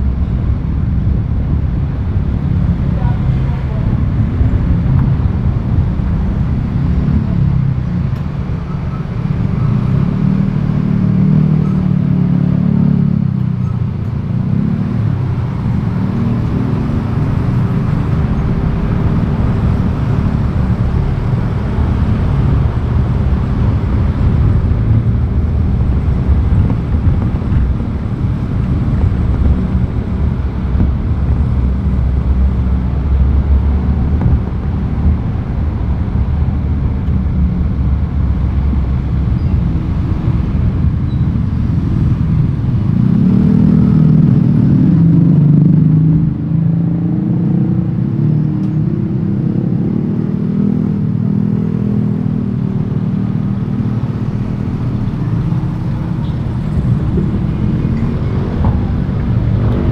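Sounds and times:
engine and tyre rumble: 0:00.0 - 0:59.9
engine note rising and falling: 0:14.5 - 0:59.9.

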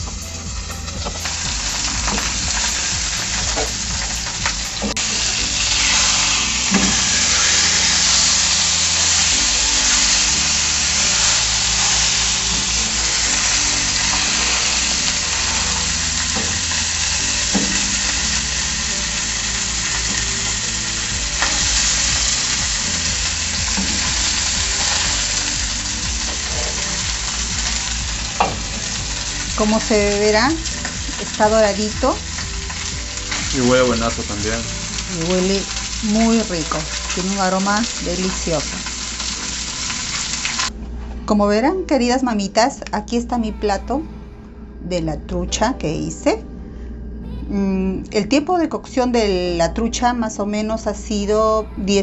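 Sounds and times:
fish sizzling in hot oil: 0:00.0 - 0:40.7.

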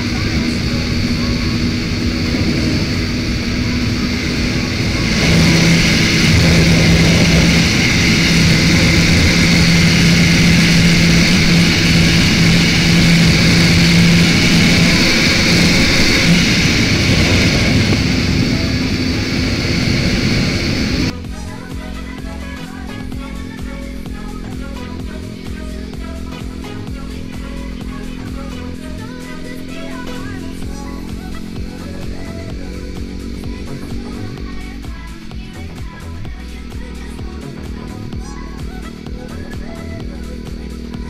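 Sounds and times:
wind noise: 0:00.0 - 0:21.1
motorcycle engine at high revs: 0:00.0 - 0:41.0.

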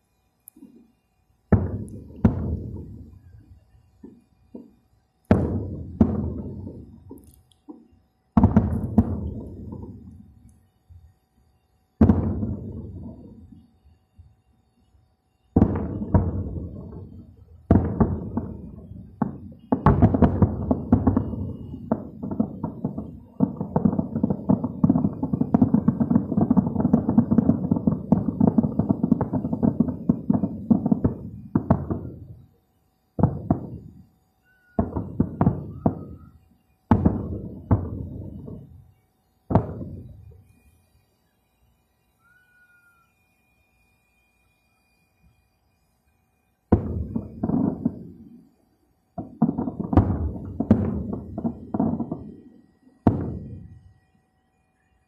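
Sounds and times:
fireworks booming and cracking: 0:01.5 - 0:10.6, 0:12.0 - 0:13.7, 0:15.5 - 0:32.6, 0:33.2 - 0:40.7, 0:46.7 - 0:48.4, 0:49.2 - 0:53.9.

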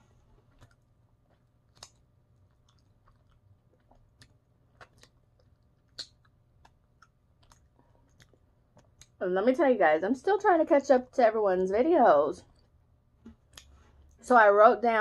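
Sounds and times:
person chewing and licking: 0:00.3 - 0:09.2, 0:13.4 - 0:14.2
sharp mouth smacks: 0:05.9 - 0:06.3.

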